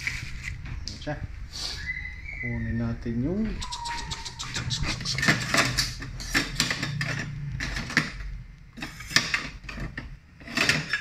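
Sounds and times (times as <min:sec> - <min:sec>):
dishes clattering in a rack: 0:08.8 - 0:11.0.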